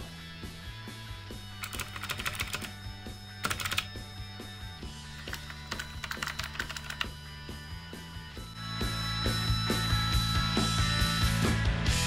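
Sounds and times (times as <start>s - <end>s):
background music: 0.0s - 12.0s
mechanical keyboard clicks: 1.6s - 2.7s, 3.4s - 3.9s, 5.2s - 7.1s.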